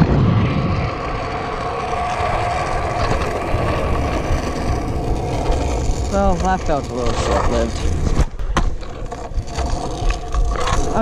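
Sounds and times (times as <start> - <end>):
scooter wheels rolling on asphalt: 0.0 - 11.0.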